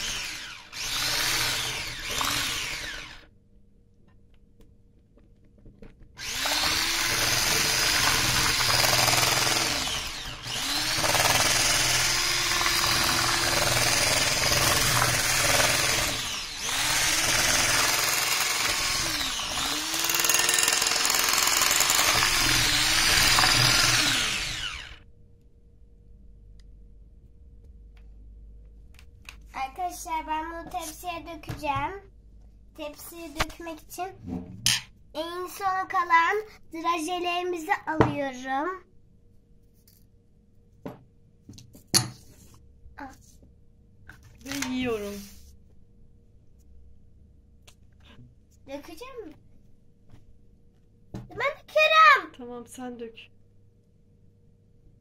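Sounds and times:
electric hand mixer running: 0.0 - 3.2, 6.2 - 25.0.

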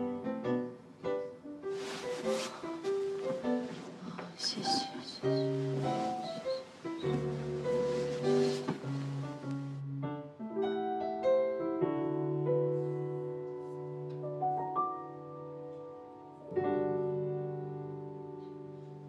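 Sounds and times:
slow piano music: 0.0 - 19.0
soft rushing hiss: 1.4 - 9.8.

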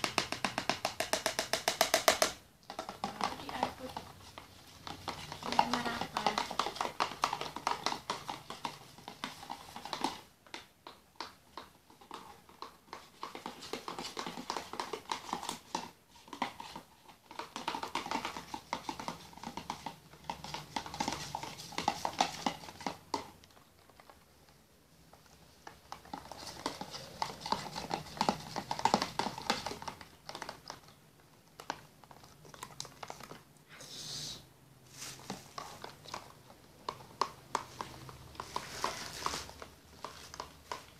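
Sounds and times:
plastic spoons stirring slime: 0.0 - 40.9.

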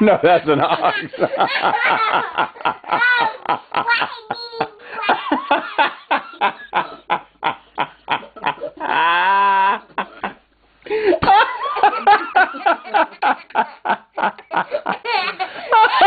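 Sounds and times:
toddler laughing: 0.6 - 7.2, 11.2 - 16.0.

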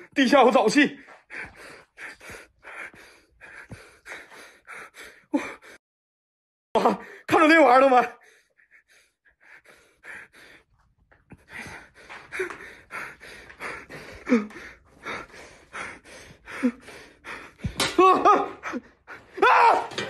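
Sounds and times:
man panting hard: 1.0 - 5.8, 8.2 - 19.4
voiced gasps: 11.3 - 19.4
man crying out: 18.0 - 20.0.

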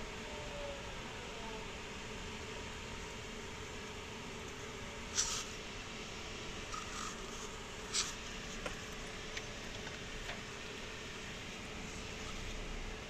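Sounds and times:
faint hum: 0.0 - 13.0
background hiss: 4.2 - 9.4.

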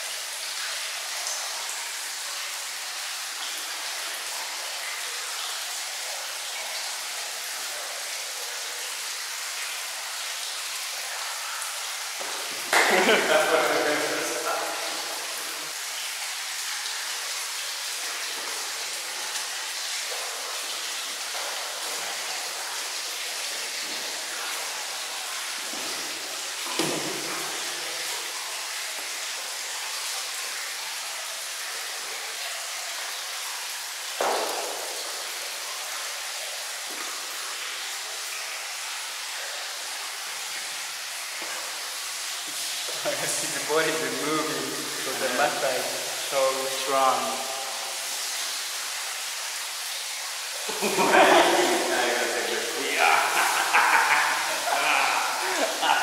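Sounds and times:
watery foam wash hiss: 0.0 - 56.0.

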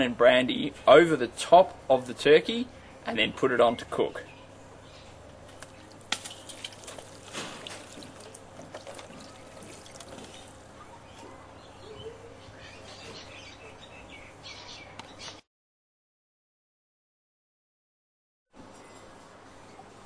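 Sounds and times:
liquid trickling and splashing: 5.6 - 10.6.

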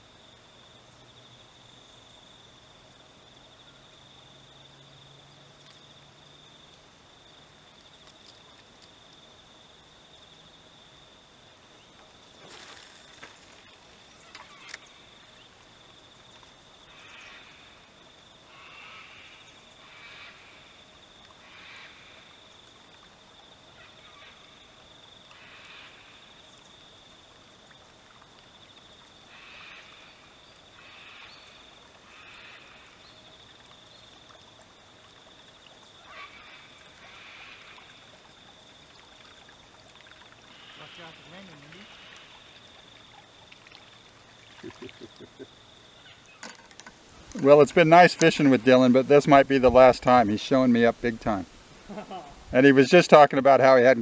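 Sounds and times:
high-pitched insect whine: 0.0 - 52.7
short animal calls: 36.0 - 37.8.

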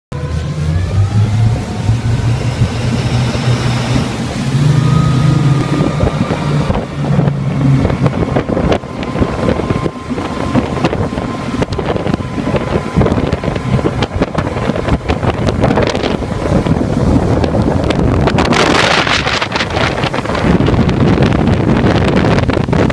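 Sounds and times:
boat engines hum: 0.1 - 22.9
rushing water: 0.2 - 22.9
wind buffeting microphone: 0.2 - 22.9.

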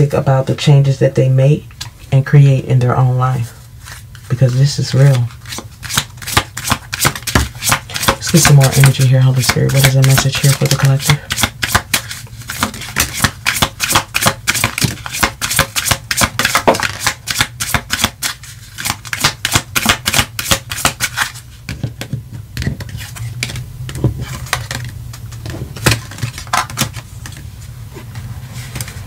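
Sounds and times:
low steady hum: 0.0 - 29.0
cards being shuffled: 3.8 - 29.0
cards tapped down: 5.5 - 27.4.

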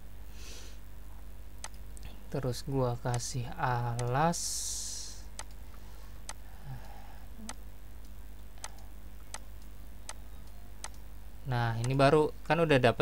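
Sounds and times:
steady low hum: 0.0 - 13.0
computer mouse clicking: 1.6 - 1.8, 3.9 - 4.2, 5.4 - 11.0, 11.8 - 12.0.

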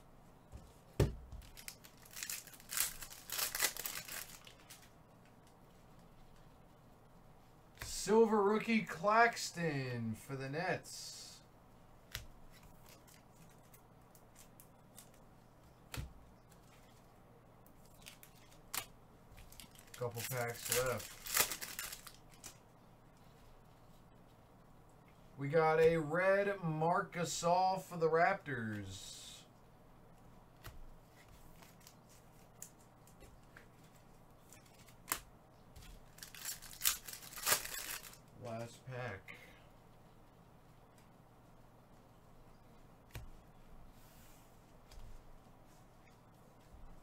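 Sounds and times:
faint clicks of cards handled: 43.0 - 43.4.

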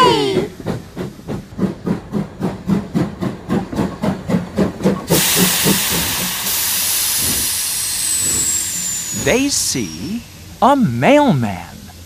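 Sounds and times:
cartoon steam train chuffing: 0.0 - 12.0
hiss of steam: 5.1 - 12.0.

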